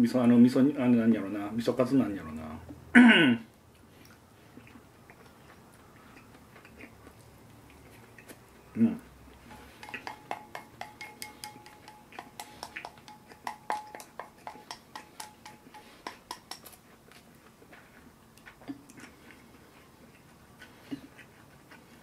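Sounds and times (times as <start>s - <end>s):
chopsticks clicking against bowl: 9.8s - 16.8s.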